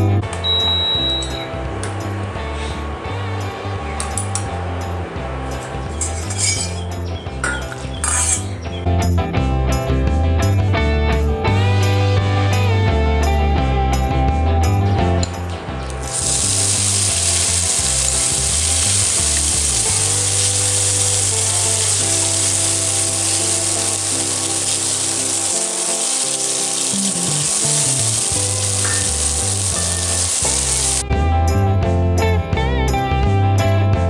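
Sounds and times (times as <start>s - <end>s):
minced meat sizzling in a wok: 16.0s - 31.0s.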